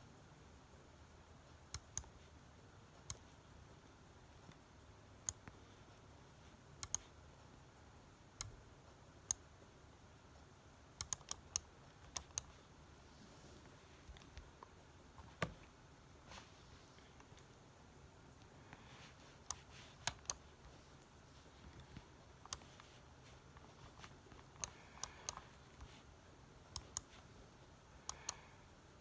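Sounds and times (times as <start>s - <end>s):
faint room hiss: 0.0s - 29.0s
laptop keys clicking: 6.8s - 7.1s, 11.0s - 12.6s, 19.4s - 20.5s, 21.7s - 26.0s, 28.0s - 28.5s.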